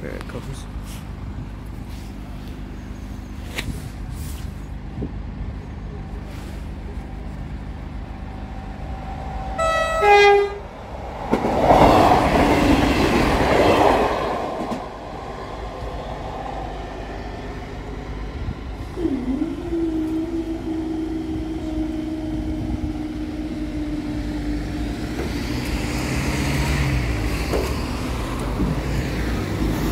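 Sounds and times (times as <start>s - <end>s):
train running over crossing: 6.6s - 29.9s
two-tone train horn: 9.6s - 10.7s.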